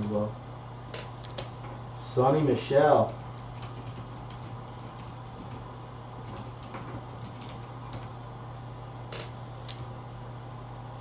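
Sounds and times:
steady low hum: 0.0 - 11.0
keyboard keys clicking: 3.4 - 5.6, 6.2 - 8.1.

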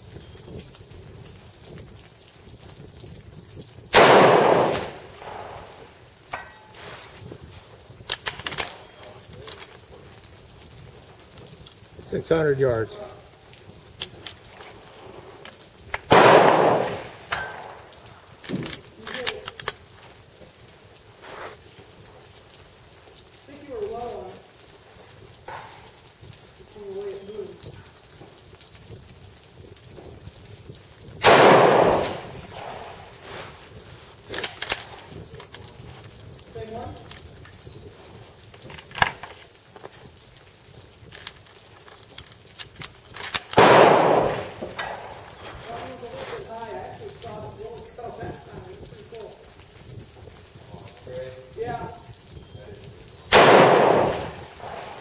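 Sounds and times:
rifle shot: 3.9 - 5.8, 16.1 - 17.8, 31.2 - 33.1, 43.5 - 45.2, 53.3 - 55.0
sharp short crack: 4.0 - 5.5.

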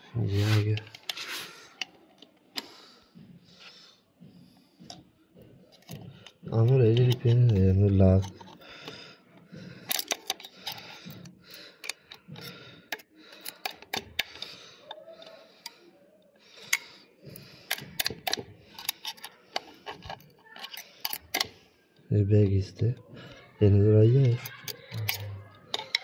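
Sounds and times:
soft scraping and handling: 0.0 - 16.0, 16.6 - 21.9
small metal parts clinking: 5.7 - 8.6, 9.8 - 11.1, 17.6 - 21.6, 24.1 - 26.0.

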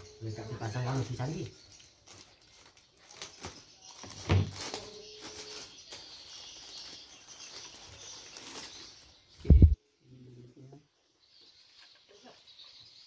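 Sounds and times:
plastic wrapping rustling: 0.0 - 9.8.

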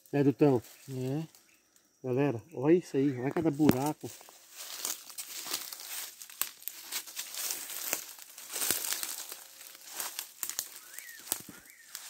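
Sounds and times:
dry leaves rustling and crackling: 3.5 - 12.0.

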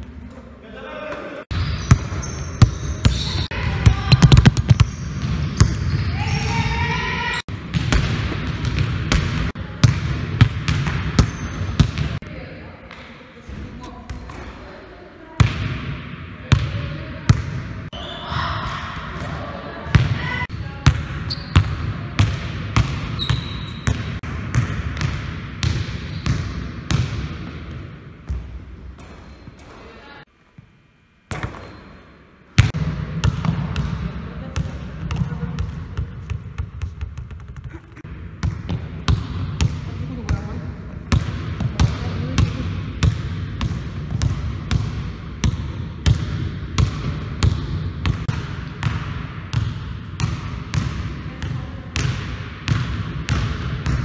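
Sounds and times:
basketball bouncing on wooden floor: 1.5 - 6.6, 7.7 - 12.2, 34.6 - 40.5.

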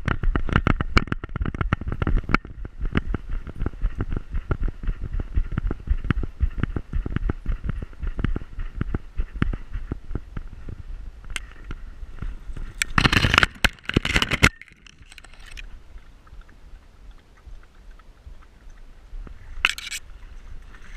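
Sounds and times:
leaves and grass rustling on camera: 7.8 - 20.9.

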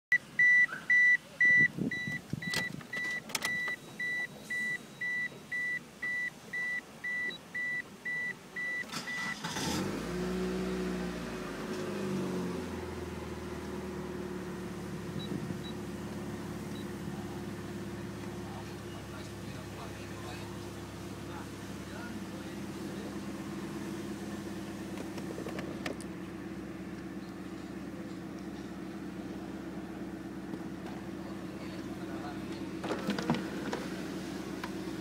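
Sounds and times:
car warning chime beeping: 0.1 - 9.6, 15.2 - 15.9, 16.7 - 17.0
car engine idling: 5.4 - 35.0
car engine cranking and starting: 8.6 - 35.0.

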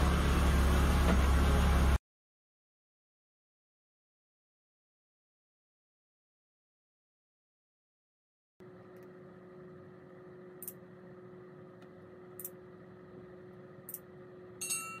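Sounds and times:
bright chime: 14.6 - 15.0.

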